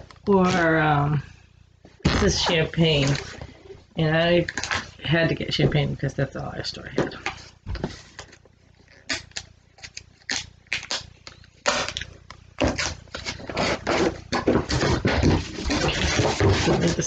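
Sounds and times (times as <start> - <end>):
cardboard scraping and rustling: 2.0 - 3.7, 7.1 - 8.4, 12.6 - 17.0
cardboard clicks and tearing: 9.0 - 17.0.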